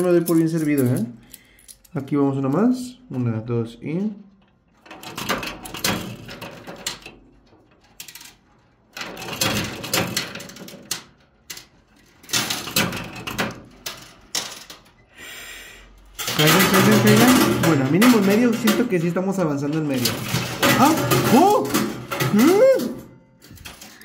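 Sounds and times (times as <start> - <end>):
metal coins clinking: 0.0 - 2.0, 16.1 - 24.0.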